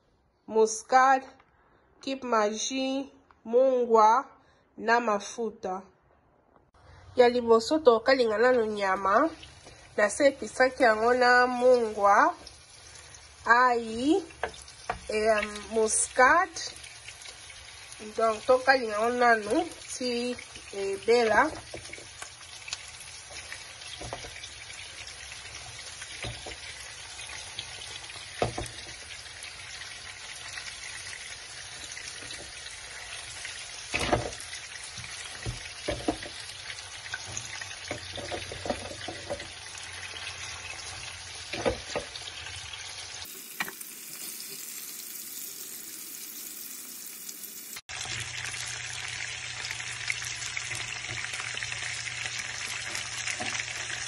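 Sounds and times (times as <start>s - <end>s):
meat sizzling in oil: 8.1s - 54.0s
pieces clattering into pan: 20.5s - 24.6s, 33.8s - 39.6s, 41.4s - 42.3s.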